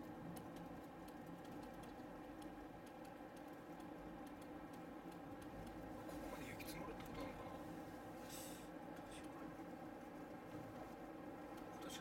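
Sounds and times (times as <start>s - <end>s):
light ticks and clicks: 0.0s - 5.9s.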